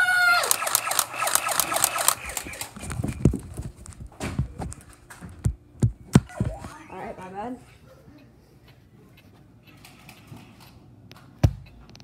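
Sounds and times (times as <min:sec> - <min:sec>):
rapid sharp clicks: 0:00.4 - 0:02.8.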